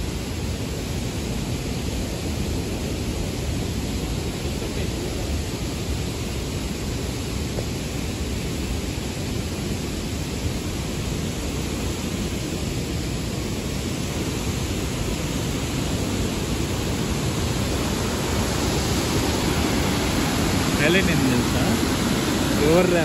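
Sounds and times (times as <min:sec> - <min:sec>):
waterfall rushing: 0:00.0 - 0:23.0.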